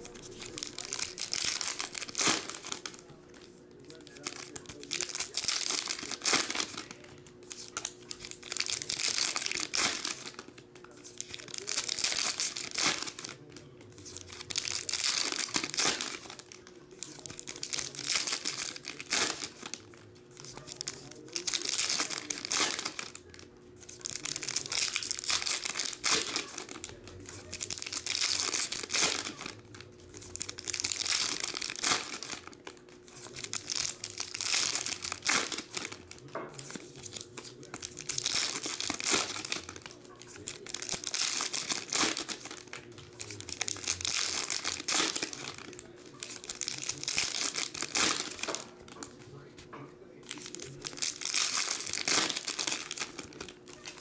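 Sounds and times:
foil wrappers tearing and crinkling: 0.0s - 49.6s, 50.2s - 54.0s.

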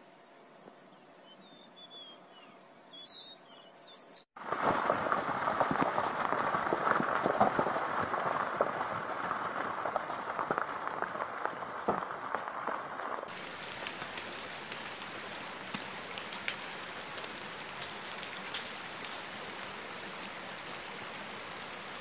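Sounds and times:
bird chirps: 0.9s - 4.3s
heavy rain: 4.4s - 22.0s.

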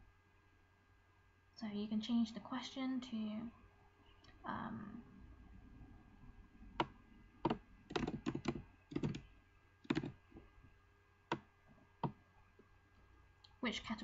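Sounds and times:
computer keyboard typing: 6.8s - 10.2s.

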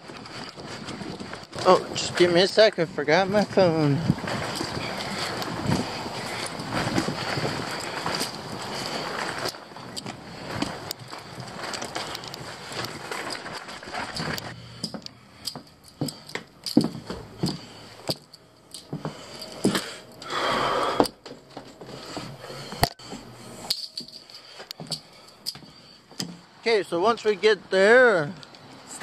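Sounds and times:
camera handling rustling: 4.1s - 20.2s.

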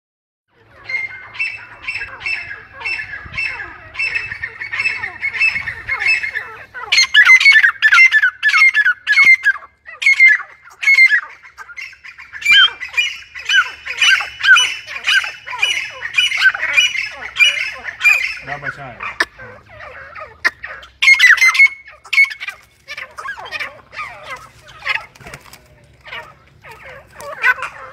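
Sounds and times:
bird calling shrill notes: 0.8s - 25.3s.

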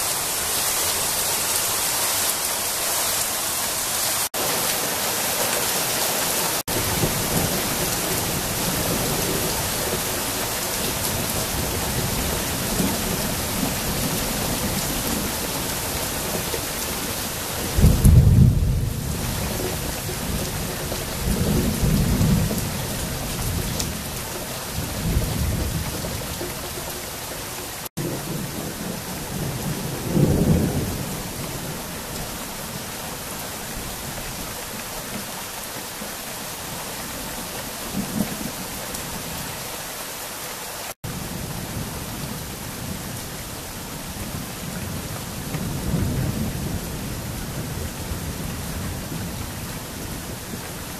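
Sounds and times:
heavy rain hiss: 0.0s - 50.9s
low thunder rolls: 17.7s - 26.5s.

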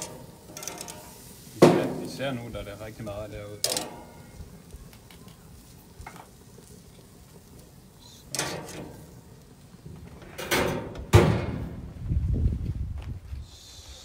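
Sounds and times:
metal tongs scraping grill grate: 0.0s - 2.4s, 3.6s - 4.4s, 8.1s - 9.2s.

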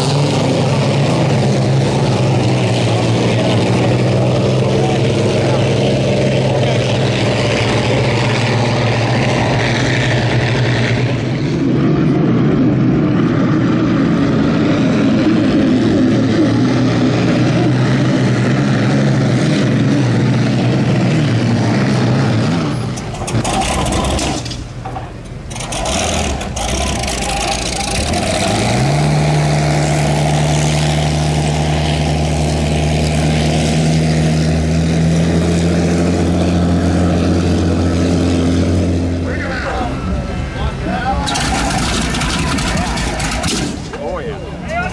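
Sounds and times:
racing boat engines droning: 0.0s - 44.9s.

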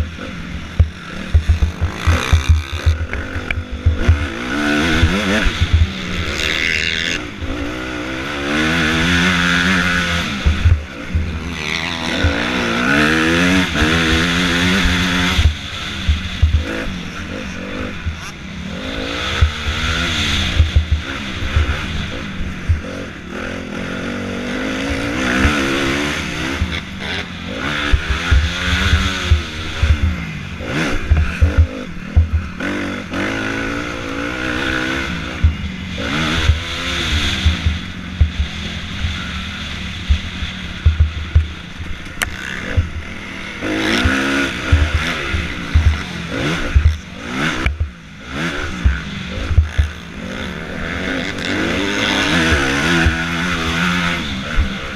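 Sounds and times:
motocross bike engine revving: 0.0s - 54.9s
low thumps: 0.7s - 6.2s, 30.9s - 32.6s, 36.4s - 38.6s, 40.0s - 43.1s, 44.0s - 47.0s, 47.6s - 48.0s.

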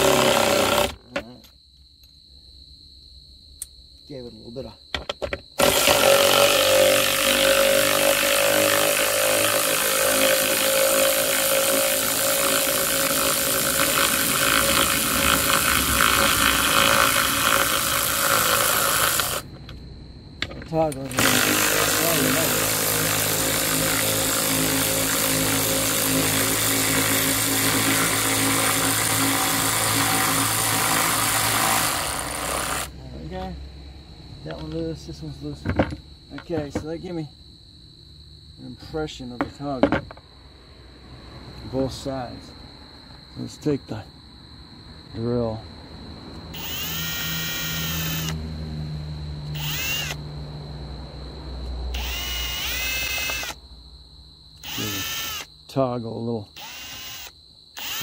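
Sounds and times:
cordless drill whining: 0.0s - 1.0s, 5.6s - 19.5s, 21.1s - 32.9s, 46.6s - 48.4s, 49.5s - 50.2s, 51.9s - 53.6s, 54.6s - 55.5s, 56.6s - 58.0s
machine motor humming: 49.6s - 50.2s.

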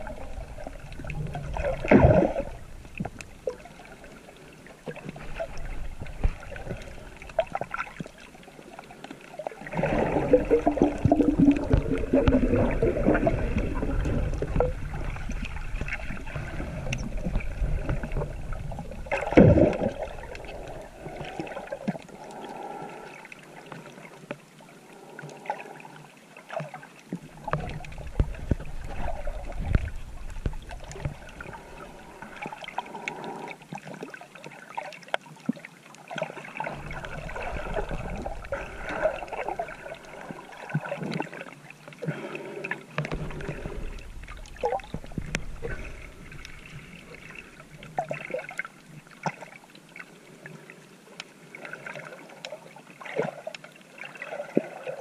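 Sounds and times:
water sloshing and gurgling: 0.0s - 55.0s.

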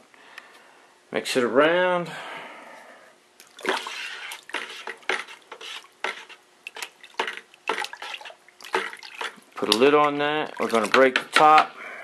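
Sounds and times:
spoon stirring water in bucket: 3.4s - 11.7s.

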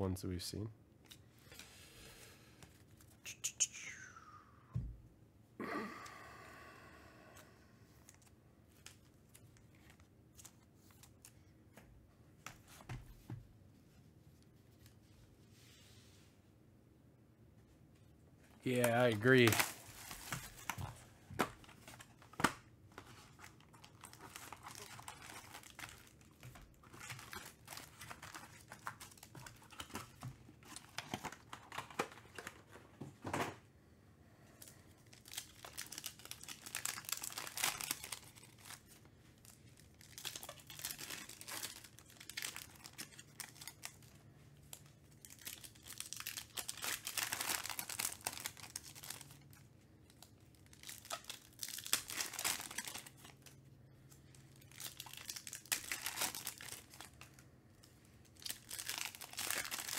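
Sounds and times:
foil wrappers crinkling and tearing: 18.7s - 32.7s, 34.6s - 57.4s, 58.2s - 59.9s.

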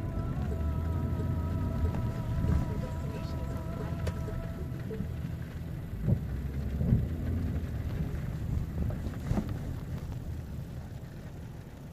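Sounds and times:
car rumbling on wet street: 0.0s - 11.9s.

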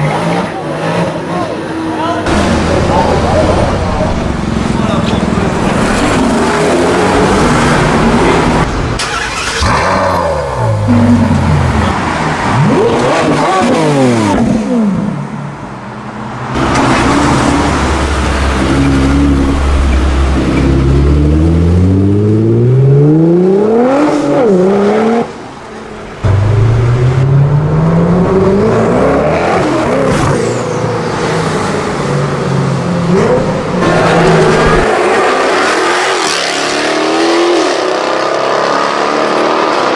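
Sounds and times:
sports car engines revving past: 16.4s - 25.4s, 26.2s - 39.9s.

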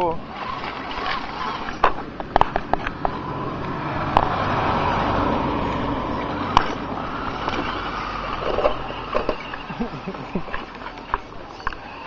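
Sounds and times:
toy truck electric motor running: 0.2s - 2.5s, 5.6s - 12.0s.

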